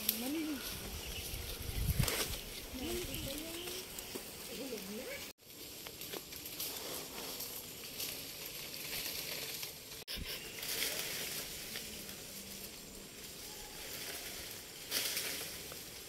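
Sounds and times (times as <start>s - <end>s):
high-pitched hiss with crackles: 0.0s - 16.0s.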